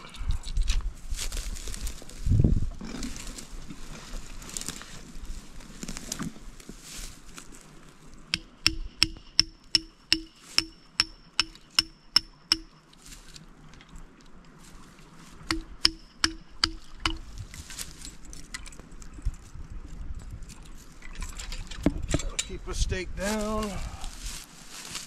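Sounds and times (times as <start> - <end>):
hammer striking stake: 8.4 - 12.8, 15.4 - 17.4.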